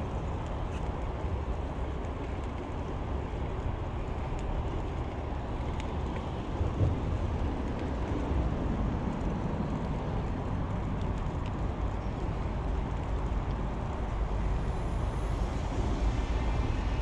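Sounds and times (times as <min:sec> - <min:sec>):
wind buffeting microphone: 0:00.0 - 0:14.4
tyres humming on asphalt: 0:00.0 - 0:17.0.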